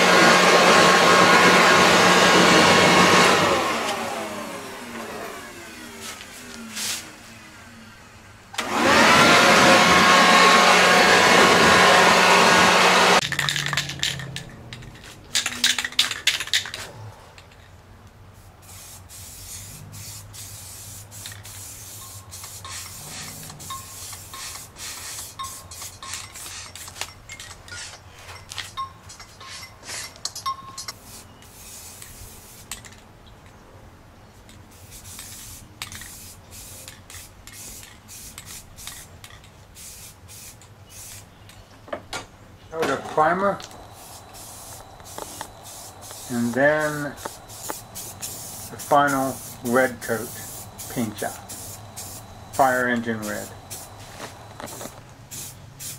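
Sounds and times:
handheld blower: 0.0 - 14.4, 22.4 - 26.0
spray can hissing: 6.0 - 7.2, 13.2 - 16.8, 18.4 - 27.1, 30.9 - 32.8, 34.7 - 41.3, 43.7 - 55.9.

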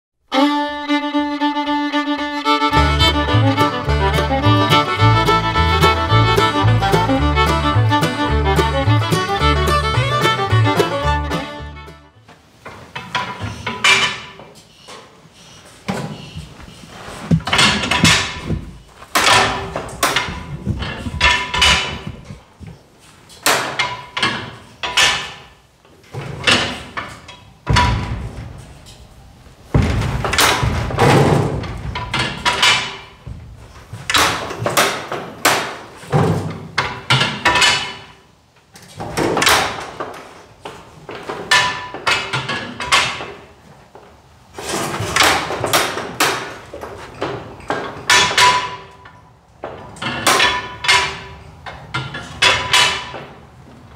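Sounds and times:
metallic clanks of tractor levers: 17.4 - 22.4, 23.3 - 29.1, 29.8 - 33.4, 34.1 - 43.5, 44.6 - 53.4.

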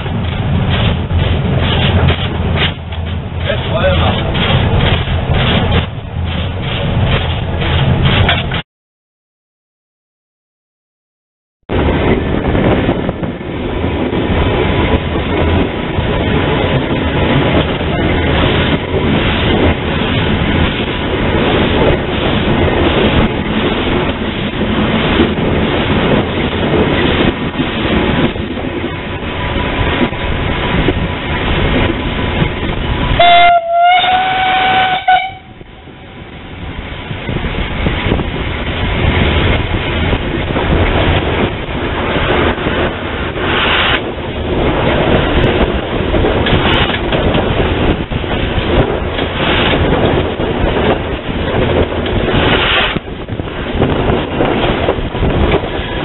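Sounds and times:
steam locomotive running: 0.0 - 8.6, 11.8 - 56.0
steam whistle blasts: 33.2 - 35.6.

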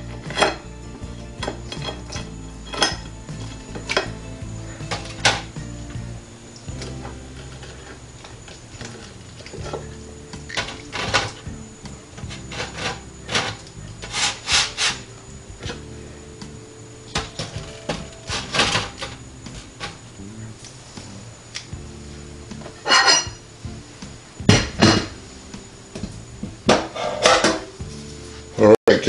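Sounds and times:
metal tongs clacking and scraping: 1.4 - 4.2, 12.2 - 15.1.

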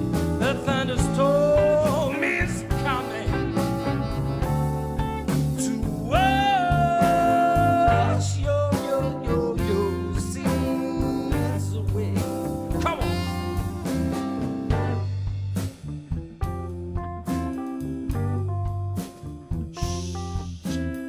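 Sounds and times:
electric guitar: 0.0 - 11.5
bass: 0.0 - 21.0
drums: 0.0 - 21.0
saxophone: 2.6 - 11.6, 12.8 - 15.2.

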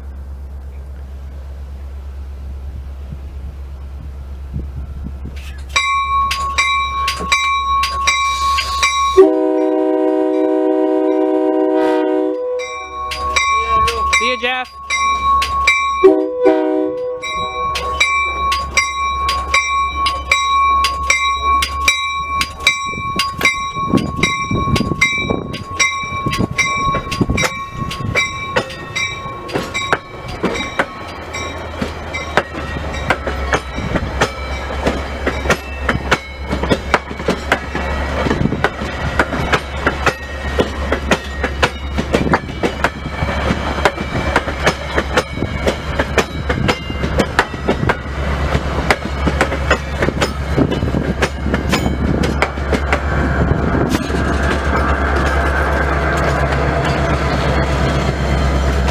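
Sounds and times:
train wheels clacking on rails: 5.3 - 11.4, 17.3 - 58.9
bell ringing: 5.7 - 10.5, 12.3 - 16.3, 16.9 - 38.1, 39.0 - 48.3
train horn blast: 9.2 - 12.8, 16.0 - 17.7.

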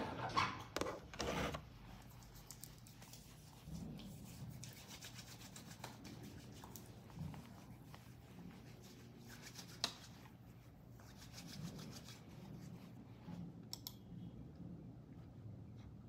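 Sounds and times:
low room hum: 0.0 - 16.0
hands rubbing together: 2.1 - 13.0.

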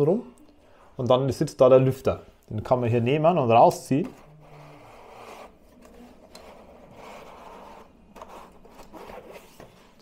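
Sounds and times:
plastic scraping and rubbing: 4.0 - 10.0.

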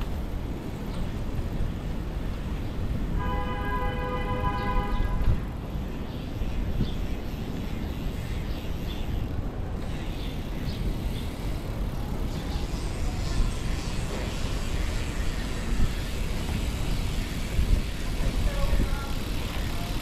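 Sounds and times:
road noise: 0.0 - 20.0
wind buffeting: 0.0 - 20.0.

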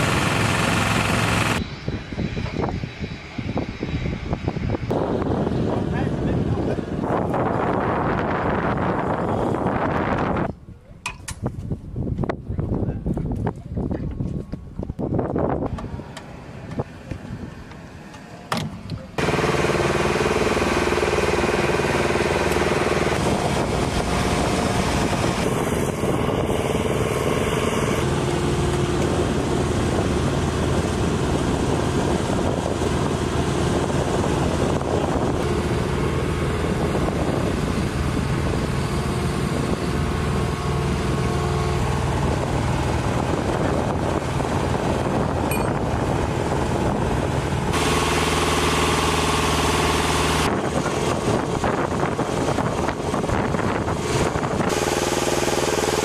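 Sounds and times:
lift truck engine idling: 19.2 - 31.8.

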